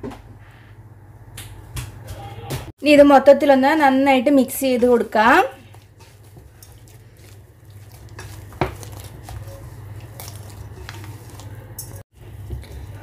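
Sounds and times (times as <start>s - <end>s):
dough being kneaded: 3.7s - 13.0s.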